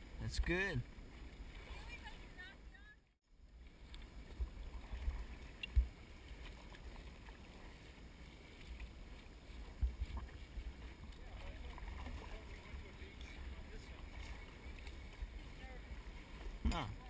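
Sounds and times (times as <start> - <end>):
faint water sounds: 0.0 - 17.0
wind rumble on microphone: 3.7 - 17.0.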